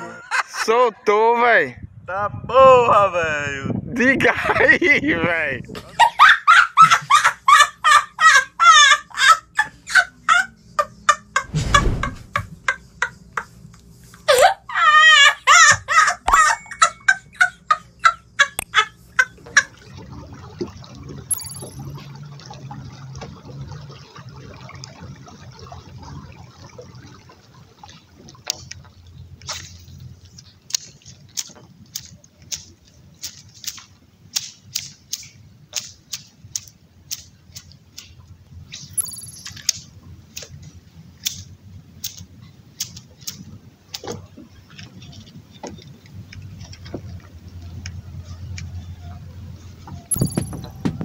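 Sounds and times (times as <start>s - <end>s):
faint low rumble: 11.4s - 13.9s.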